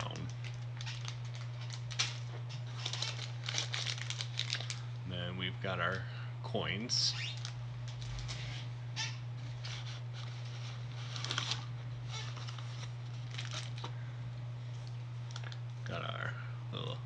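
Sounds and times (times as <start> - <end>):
plastic packaging rustling: 0.0 - 4.9, 7.2 - 8.7, 9.4 - 14.0, 14.7 - 15.6
steady low hum: 0.0 - 17.0.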